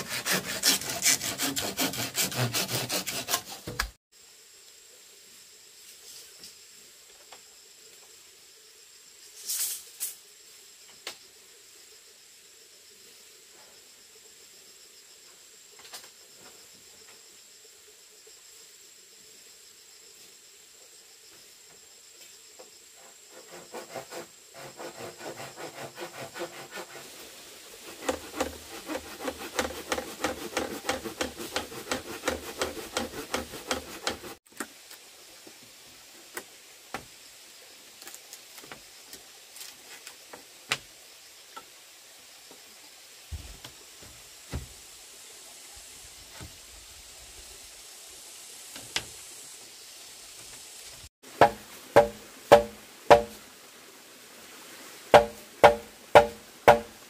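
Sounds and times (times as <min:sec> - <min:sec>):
hand tool rasping bamboo: 0:00.0 - 0:04.0, 0:23.3 - 0:27.2, 0:27.8 - 0:34.4, 0:51.4 - 0:53.4, 0:55.2 - 0:56.9
sharp wood knocks: 0:03.6 - 0:04.0, 0:44.5 - 0:44.7, 0:51.4 - 0:53.4, 0:55.2 - 0:57.0
high insect drone: 0:04.1 - 0:33.2.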